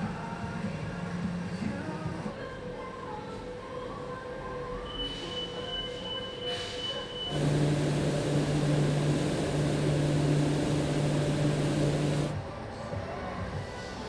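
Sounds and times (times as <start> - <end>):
machine humming and hissing: 7.3 - 12.4.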